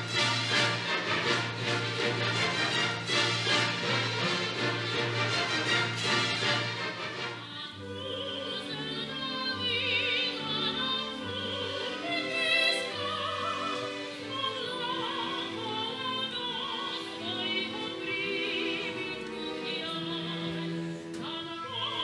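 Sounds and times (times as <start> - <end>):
orchestra playing: 0.0 - 22.0
woman singing opera: 7.3 - 22.0.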